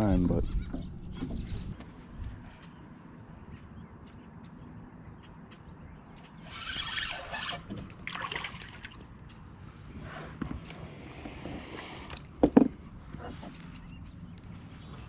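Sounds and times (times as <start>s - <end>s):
water splashing: 6.8s - 9.1s.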